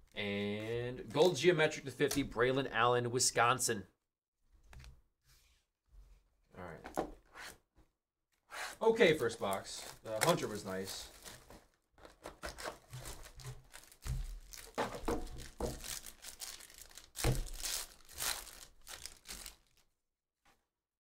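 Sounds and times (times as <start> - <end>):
plastic wrapper crinkling and tearing: 9.4 - 19.9.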